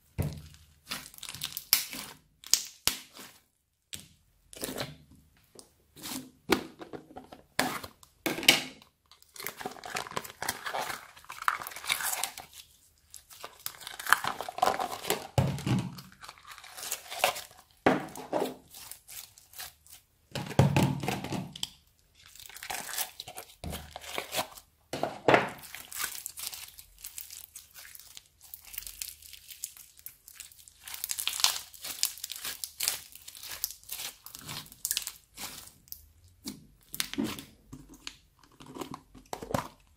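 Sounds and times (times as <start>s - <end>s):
slime squishing: 0.0s - 6.5s, 9.2s - 20.4s, 21.5s - 24.7s, 25.5s - 39.9s
slime crackling and popping: 0.3s - 3.4s, 25.6s - 37.5s.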